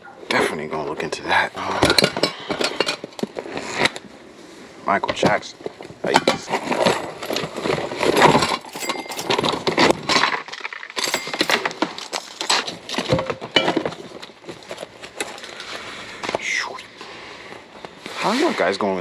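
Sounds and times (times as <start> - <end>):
hands rummaging in plastic bin: 6.0 - 16.4
hard objects clinking: 6.1 - 15.8.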